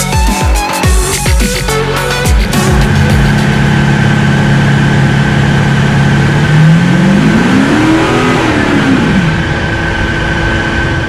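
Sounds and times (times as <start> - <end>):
diesel engine revving on dyno: 2.5 - 11.0.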